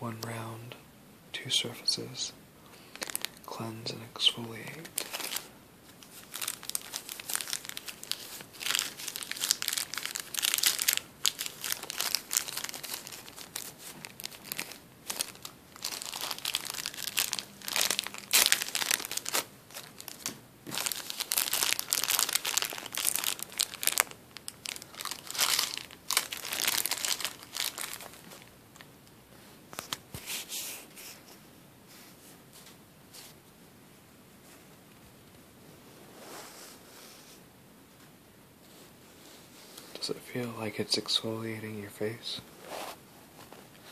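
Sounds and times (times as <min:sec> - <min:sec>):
plastic bag crinkling: 0:02.9 - 0:03.6, 0:04.2 - 0:28.9.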